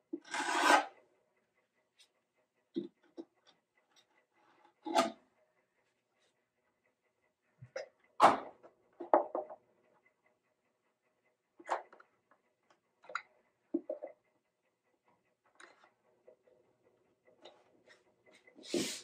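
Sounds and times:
clamps knocking and clicking on wood: 0:08.2 - 0:09.6.

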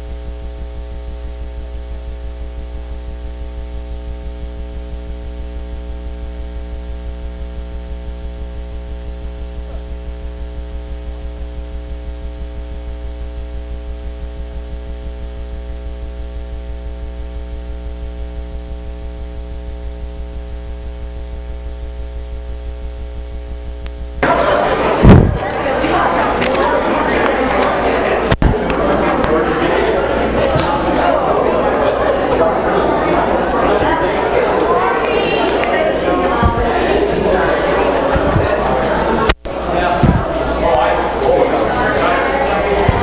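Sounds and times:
electrical mains hum: 0:00.0 - 0:43.0.

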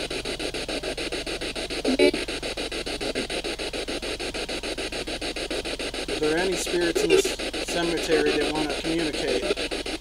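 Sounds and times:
pulsing radio static: 0:00.0 - 0:10.0
radio voice: 0:06.2 - 0:09.6.

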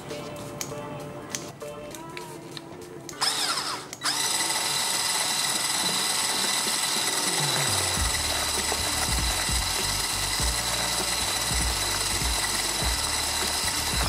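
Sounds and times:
electric hand mixer whining: 0:03.1 - 0:14.0.

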